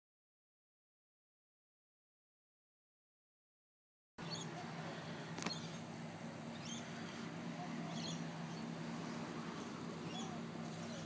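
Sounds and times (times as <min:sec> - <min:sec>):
small birds chirping: 0:04.2 - 0:11.0
steady low hum: 0:04.2 - 0:11.0.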